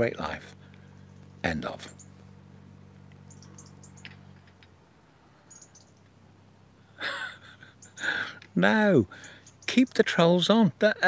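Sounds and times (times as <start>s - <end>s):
low steady hum: 0.0s - 11.0s
faint high bird chirps: 0.8s - 2.4s, 3.2s - 4.4s, 5.4s - 6.2s, 7.6s - 8.3s, 9.1s - 10.1s.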